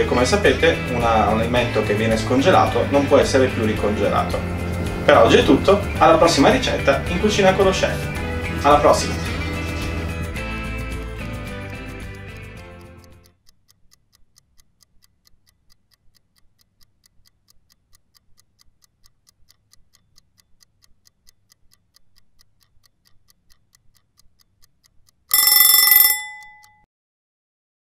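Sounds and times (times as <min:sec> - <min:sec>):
guitar music: 0:00.0 - 0:13.2
clock ticking: 0:00.0 - 0:26.9
ringing chime: 0:25.3 - 0:26.9.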